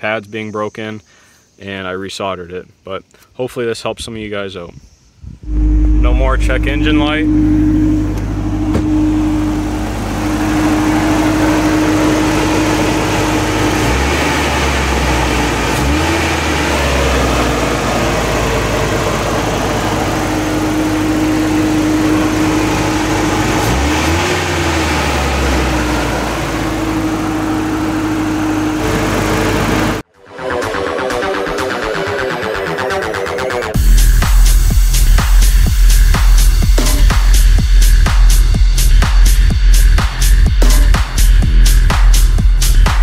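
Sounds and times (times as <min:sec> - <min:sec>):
pickup engine idling: 0:05.5 - 0:30.0.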